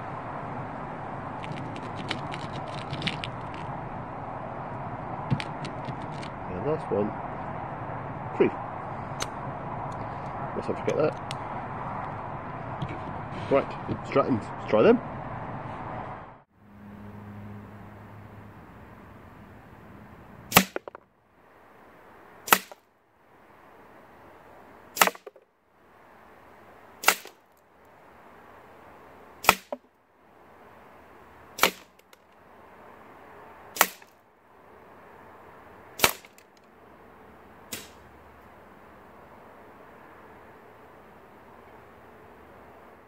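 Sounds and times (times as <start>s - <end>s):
air rifle shots: 20.5s - 21.0s, 22.5s - 22.8s, 25.0s - 25.4s, 27.0s - 27.4s, 29.4s - 29.8s, 33.8s - 34.1s, 36.0s - 36.4s, 37.7s - 38.0s.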